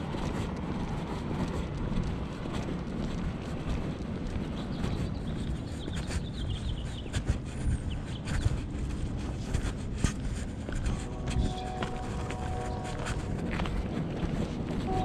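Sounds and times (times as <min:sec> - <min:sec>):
footsteps on pavement: 0:00.0 - 0:15.0
bird chirping: 0:11.1 - 0:13.2.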